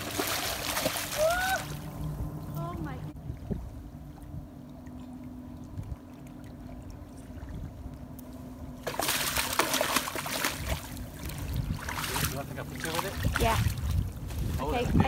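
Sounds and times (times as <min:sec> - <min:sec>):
fish splashing in water: 0:00.0 - 0:01.9, 0:08.8 - 0:14.0.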